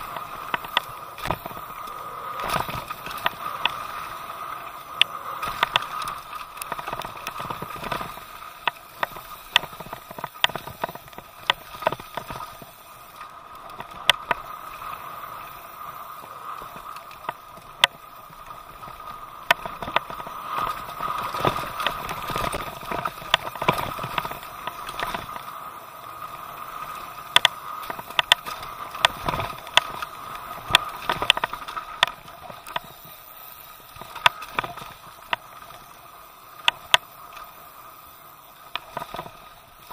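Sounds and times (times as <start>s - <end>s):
bike chain clacking and rattling: 0.0s - 14.5s
bike tyres rushing over dirt: 0.0s - 39.9s.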